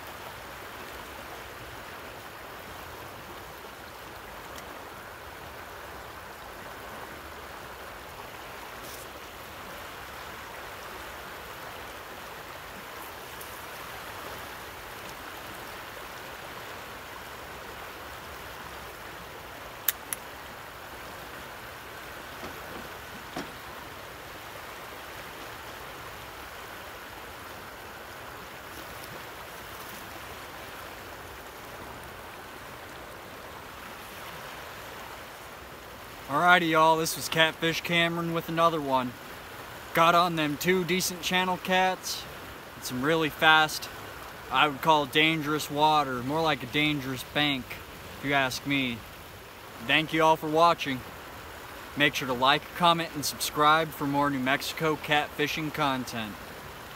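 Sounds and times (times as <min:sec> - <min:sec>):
river current rushing: 0:00.0 - 0:56.9
faint knock: 0:22.4 - 0:23.6.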